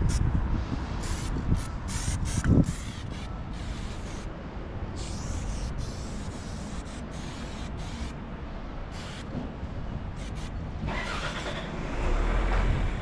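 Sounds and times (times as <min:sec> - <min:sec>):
spray paint can hissing: 0:01.0 - 0:04.3, 0:04.9 - 0:08.2, 0:08.9 - 0:09.3, 0:10.2 - 0:10.6.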